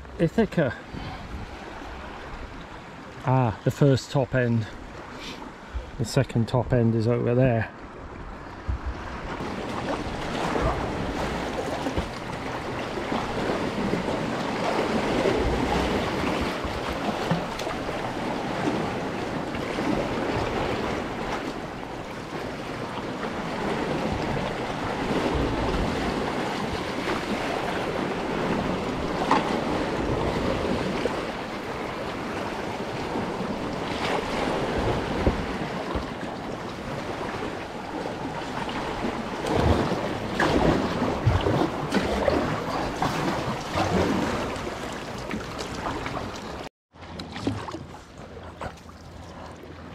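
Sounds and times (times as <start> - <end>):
wind noise on microphone: 0.9 - 2.6, 8.0 - 21.8, 23.3 - 31.2
sea water sloshing against rocks: 7.9 - 49.9.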